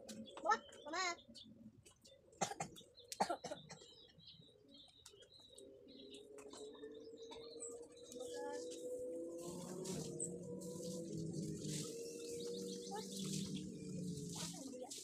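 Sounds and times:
small birds chirping: 0.0s - 15.0s
low steady drone: 5.6s - 15.0s.

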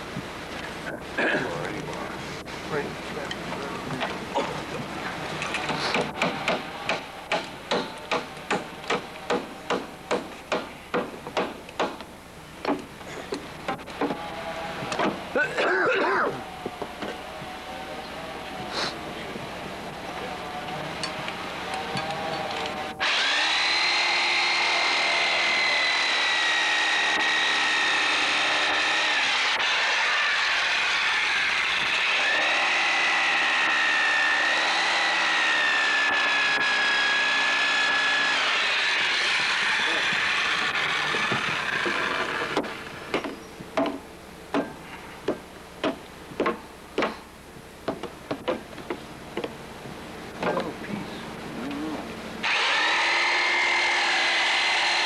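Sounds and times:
sharp knocks: 5.7s - 12.9s, 42.6s - 47.2s
power tool whining: 20.4s - 43.6s, 52.4s - 55.0s.

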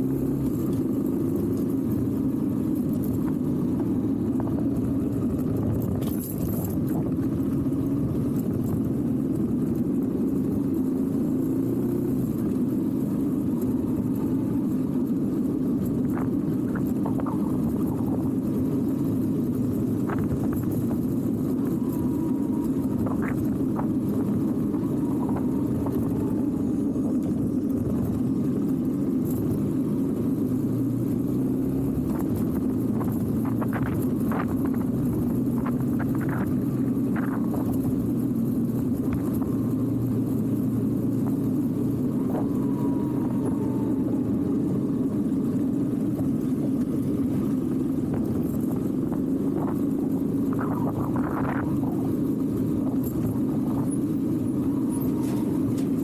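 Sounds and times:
falling whine: 0.0s - 56.0s
motorcycle engine rumble: 0.0s - 56.0s
wind rush: 12.8s - 56.0s.

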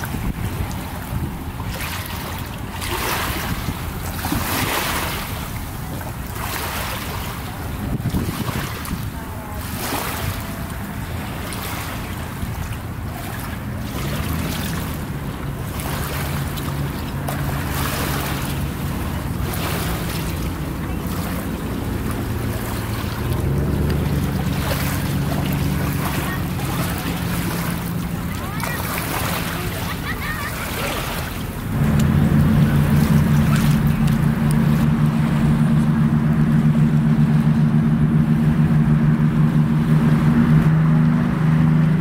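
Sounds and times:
distant motorboat engine hum: 0.0s - 42.0s
small waves lapping: 0.0s - 42.0s
wind buffeting microphone: 0.0s - 42.0s.

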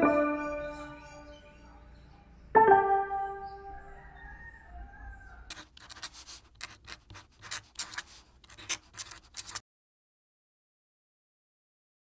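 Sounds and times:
pen scratching on paper: 5.5s - 9.6s.

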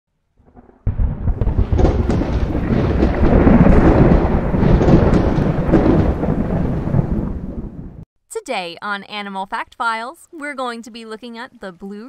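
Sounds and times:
crackles: 0.4s - 8.0s
thunder-like rumbling: 0.4s - 8.0s.

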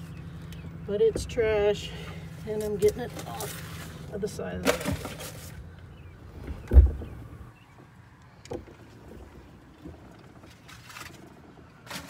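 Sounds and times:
heavy low thump: 6.4s - 7.4s.

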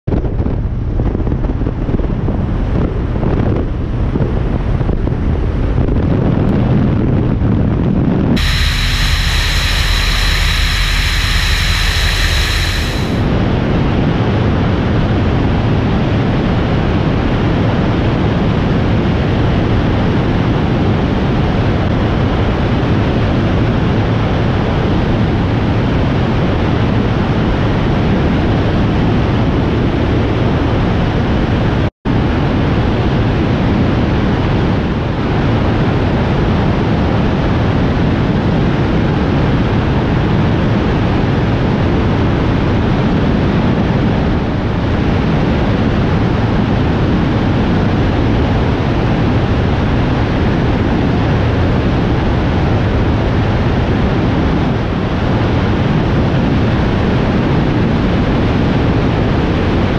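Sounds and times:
aircraft engine droning: 8.4s - 13.3s.

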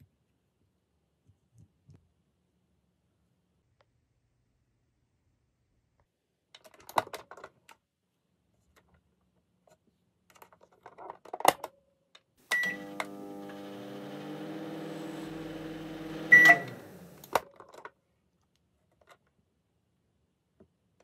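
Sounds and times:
short beep: 16.3s - 16.7s.

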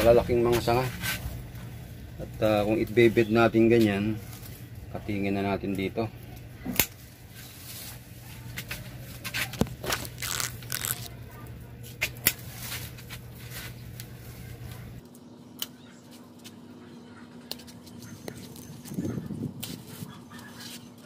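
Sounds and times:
leaves and twigs rustling: 0.0s - 16.6s
pruning shears snipping: 12.0s - 12.5s.

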